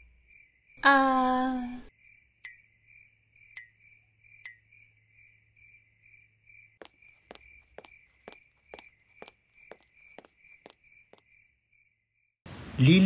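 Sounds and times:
crickets chirping: 0.0s - 0.8s, 1.9s - 12.3s
footsteps: 6.8s - 11.2s.

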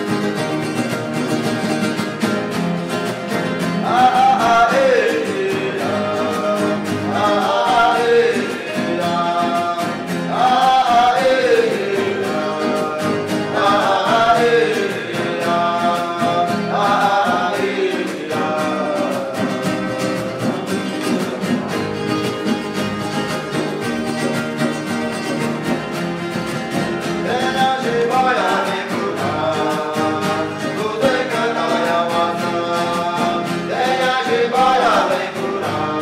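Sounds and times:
acoustic guitar strumming: 0.0s - 36.0s
person singing: 3.6s - 22.2s, 27.0s - 36.0s.

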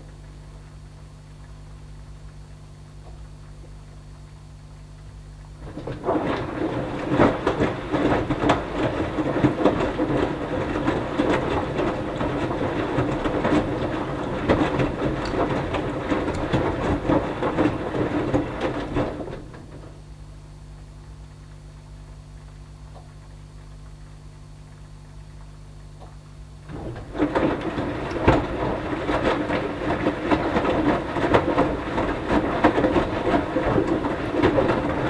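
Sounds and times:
laundry tumbling and water sloshing: 5.6s - 20.0s, 26.6s - 35.0s
washing machine motor: 5.6s - 20.2s, 26.0s - 35.0s.

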